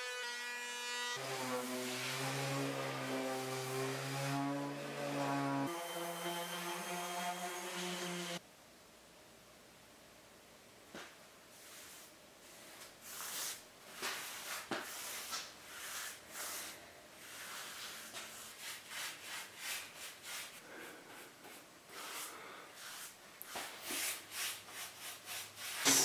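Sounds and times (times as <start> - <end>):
paintbrush swishing over wood: 11.5 - 26.0.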